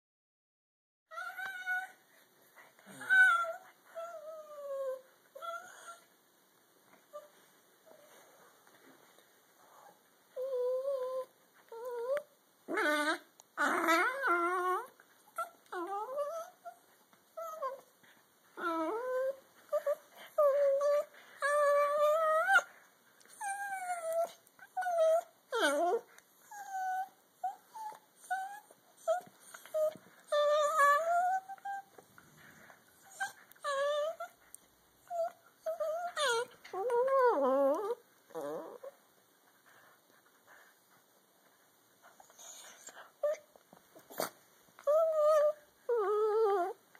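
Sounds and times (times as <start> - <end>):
dogs squealing and whining: 1.1 - 2.0, 2.9 - 6.1, 9.8 - 17.9, 18.6 - 22.7, 23.3 - 34.4, 35.0 - 39.0, 42.0 - 46.8.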